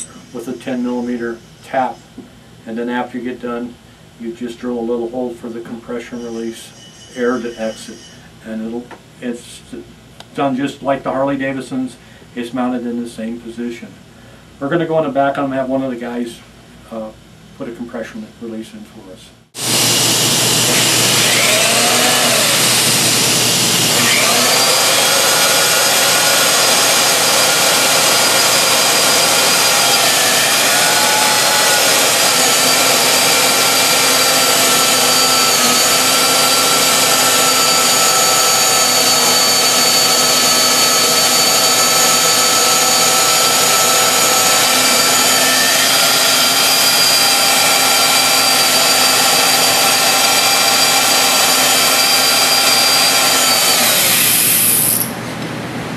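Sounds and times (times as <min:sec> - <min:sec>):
power drill whining through metal: 0:19.6 - 0:55.2.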